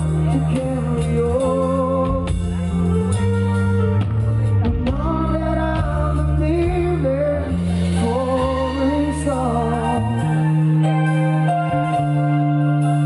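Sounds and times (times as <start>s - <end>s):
man singing: 0.0s - 3.0s, 4.7s - 10.8s
bass guitar: 0.0s - 13.0s
drums: 0.0s - 13.0s
electric guitar: 0.0s - 13.0s
keyboard: 0.0s - 13.0s.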